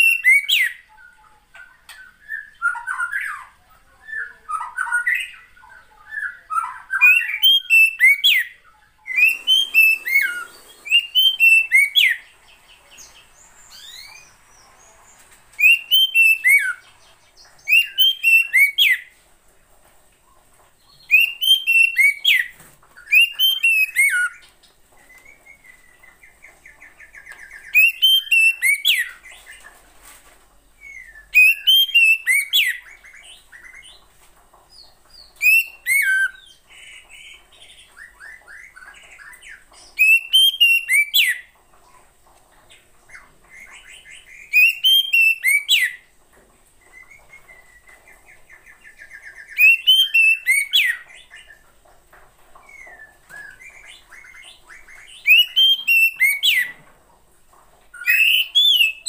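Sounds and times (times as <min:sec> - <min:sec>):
bird whistled calls: 0:07.0 - 0:14.6, 0:15.6 - 0:16.9, 0:17.7 - 0:19.0, 0:21.1 - 0:22.5, 0:23.1 - 0:24.4, 0:27.6 - 0:29.1, 0:30.8 - 0:32.8, 0:35.4 - 0:36.4, 0:40.0 - 0:41.4, 0:44.5 - 0:46.0, 0:49.2 - 0:51.0, 0:55.2 - 0:56.7, 0:58.0 - 0:59.0.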